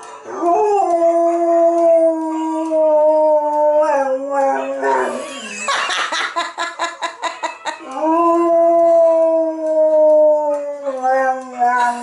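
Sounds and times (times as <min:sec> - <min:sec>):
dog yelping and howling: 0:00.3 - 0:05.2.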